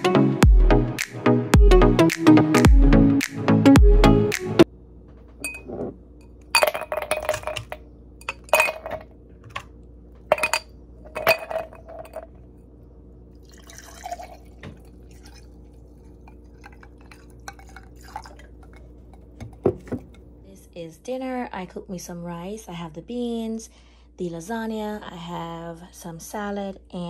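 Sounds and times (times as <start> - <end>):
steady low hum: 4.6 - 26.2
glassware clinking: 5.4 - 5.9, 6.6 - 9.6, 10.3 - 12.3, 16.3 - 20.2
liquid pouring: 13.4 - 20.1.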